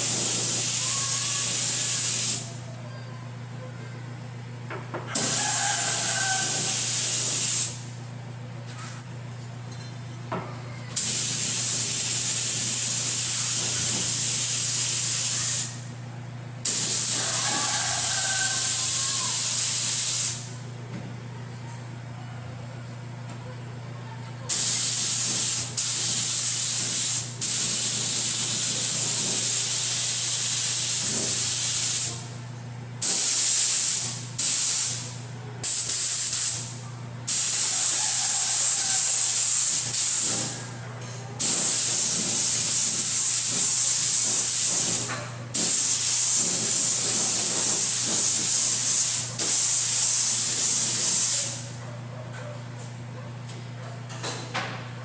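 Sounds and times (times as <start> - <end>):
paint spray gun hissing: 0.0 - 2.5, 5.2 - 7.9, 11.0 - 15.8, 16.6 - 20.5, 24.5 - 32.2, 33.0 - 36.7, 37.3 - 40.6, 41.4 - 51.7.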